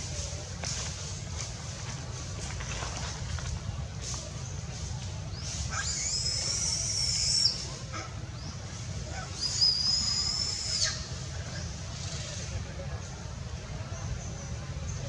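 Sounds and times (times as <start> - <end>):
monkey high-pitched crying calls: 5.7 - 7.6, 9.1 - 11.1.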